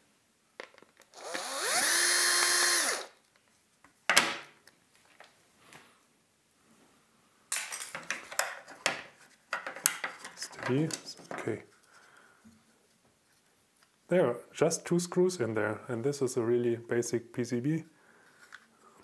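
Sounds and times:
cordless drill driving a screw: 0:01.2 - 0:03.2.

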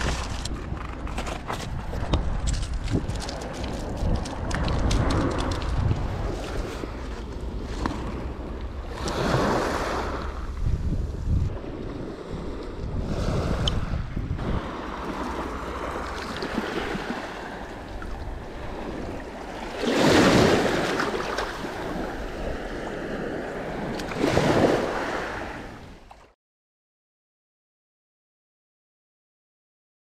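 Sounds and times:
wind on microphone: 0:00.0 - 0:26.0
waves washing over pebbles: 0:01.9 - 0:10.6, 0:11.5 - 0:25.8.

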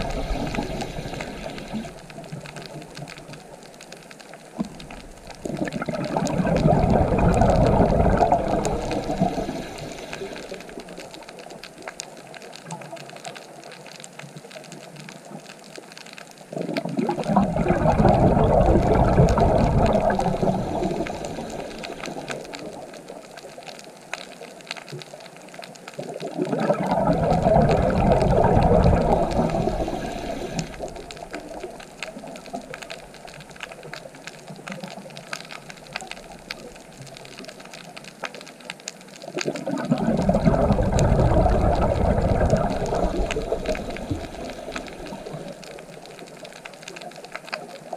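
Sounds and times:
regulator hiss: 0:00.0 - 0:02.2, 0:08.9 - 0:11.2, 0:20.2 - 0:22.5, 0:29.3 - 0:31.4
exhaled bubbles gushing: 0:00.0 - 0:03.8, 0:04.4 - 0:13.2, 0:16.5 - 0:23.8, 0:25.9 - 0:47.9
faint crackling clicks: 0:00.0 - 0:47.9.

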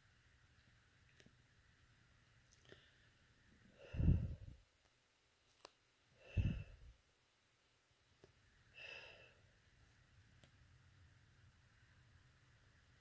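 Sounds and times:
person breathing heavily: 0:02.6 - 0:04.6, 0:06.2 - 0:07.0, 0:08.7 - 0:09.5.

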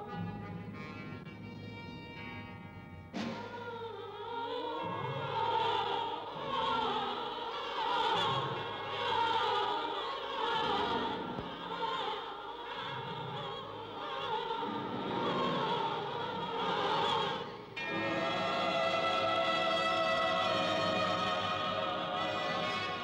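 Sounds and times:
operatic choir singing: 0:03.3 - 0:23.0
orchestral music: 0:17.8 - 0:23.0.

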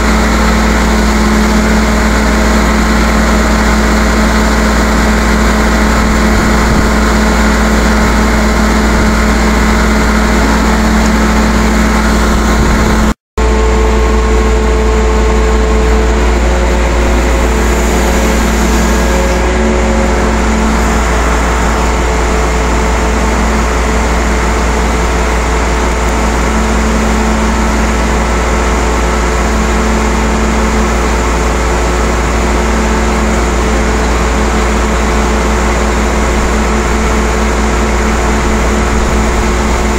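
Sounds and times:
crane engine humming: 0:00.0 - 0:39.9.

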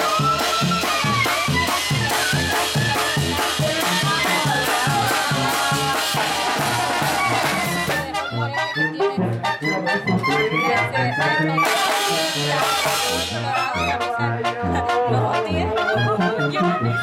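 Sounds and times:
high percussion: 0:00.0 - 0:08.2, 0:10.1 - 0:14.2
brass band playing: 0:00.0 - 0:17.0.

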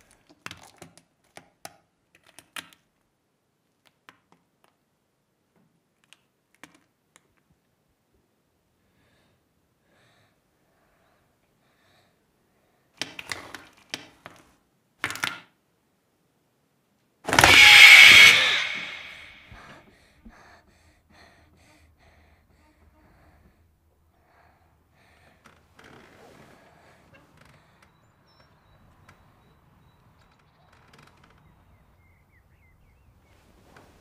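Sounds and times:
loud crash: 0:17.3 - 0:19.6.

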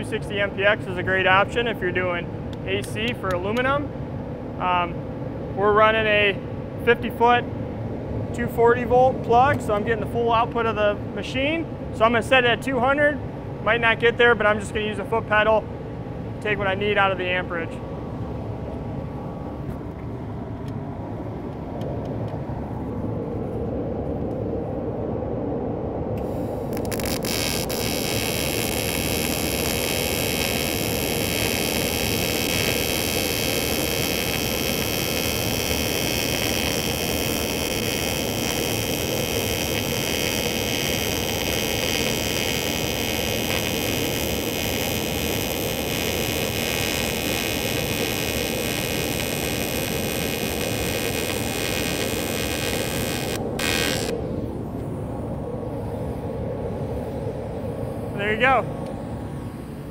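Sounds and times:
buzzing hiss of welding arc: 0:26.2 - 0:54.2
generator engine running: 0:26.7 - 0:54.3.

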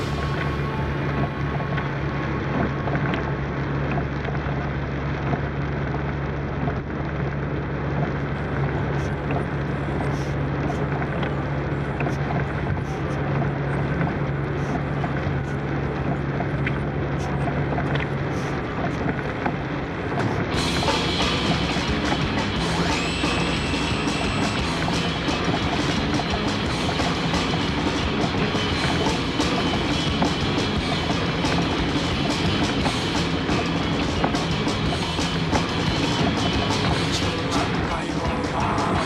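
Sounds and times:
raindrops ticking on windscreen: 0:00.0 - 0:23.5
car engine drone: 0:00.0 - 0:39.0.

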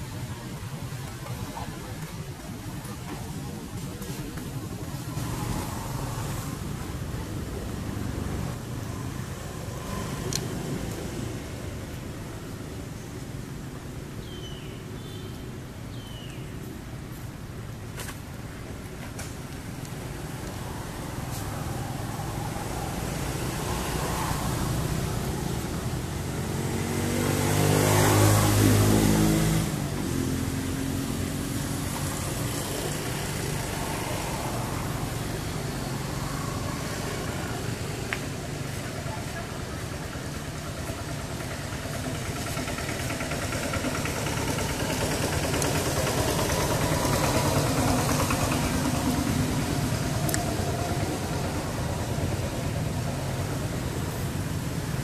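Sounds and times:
engine running: 0:18.7 - 0:55.0.

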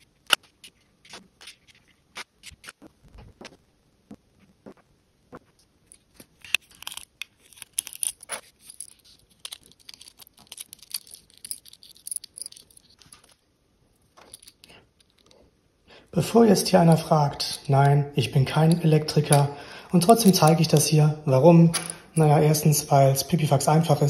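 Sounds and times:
cable rustling and tearing: 0:06.0 - 0:12.2.

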